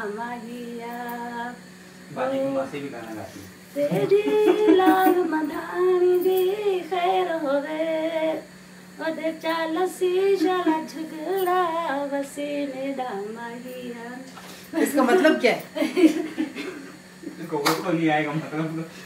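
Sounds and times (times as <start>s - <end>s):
woman singing unaccompanied: 0.0s - 1.7s, 3.8s - 15.3s.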